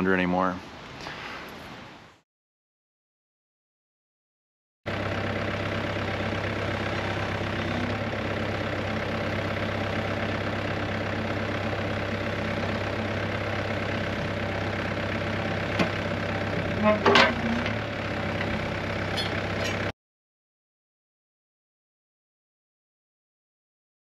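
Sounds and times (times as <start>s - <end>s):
diesel engine running: 4.9s - 19.9s.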